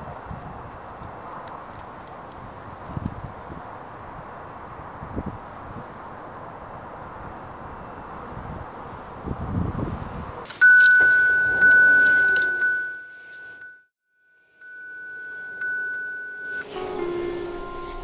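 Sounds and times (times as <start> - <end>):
outdoor breeze: 0.0 - 13.8
car warning chime: 10.5 - 18.0.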